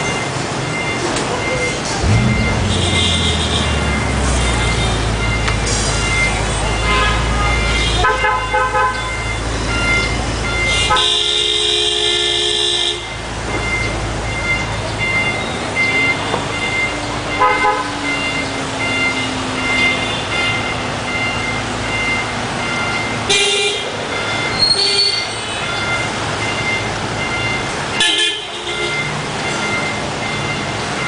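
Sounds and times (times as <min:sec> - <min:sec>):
vehicle horns honking: 0:02.0 - 0:05.3, 0:06.7 - 0:09.2, 0:09.9 - 0:13.2, 0:17.3 - 0:18.4, 0:23.3 - 0:25.9, 0:28.0 - 0:29.1.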